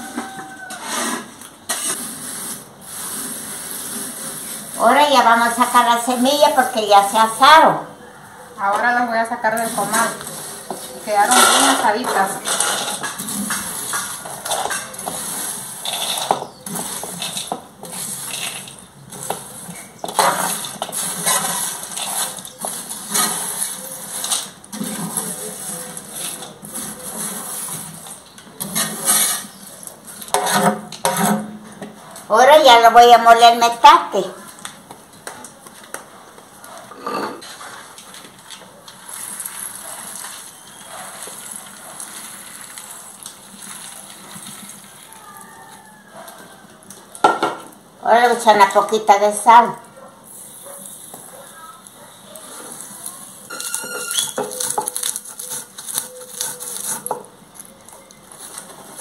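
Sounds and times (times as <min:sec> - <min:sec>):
metal spatula scraping clay griddle: 0:00.0 - 0:07.5, 0:09.5 - 0:32.1, 0:39.0 - 0:46.5, 0:51.9 - 0:59.0
dry seeds rattling: 0:09.7 - 0:27.7, 0:38.5 - 0:45.2, 0:51.8 - 0:59.0
seeds pouring onto stone: 0:39.0 - 0:45.2.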